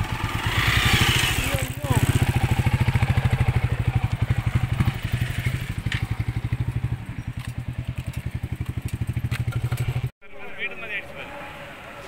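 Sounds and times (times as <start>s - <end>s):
motorcycle engine thumping: 1.3s - 10.1s.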